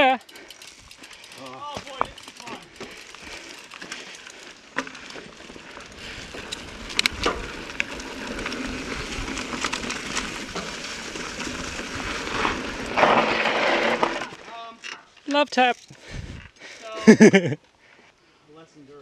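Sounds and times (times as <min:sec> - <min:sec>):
bike tyre and wind rush: 0:00.0 - 0:14.5, 0:16.0 - 0:16.6
bike rattling over rocks: 0:00.0 - 0:16.0.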